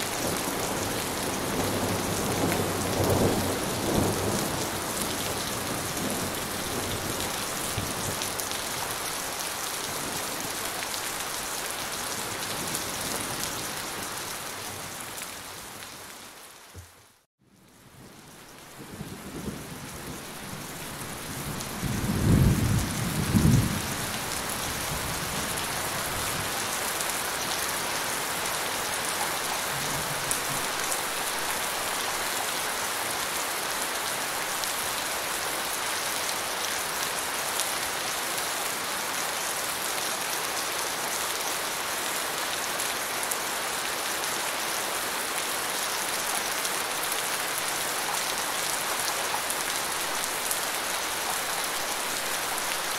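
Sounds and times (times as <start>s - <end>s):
steady rain falling: 0.0s - 52.9s
low rumble of thunder: 17.9s - 26.4s.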